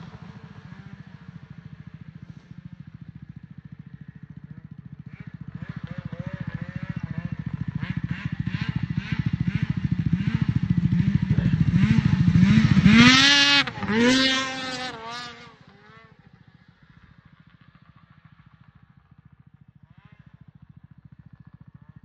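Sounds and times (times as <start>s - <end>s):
snowmobile engine revving: 5.0s - 16.2s.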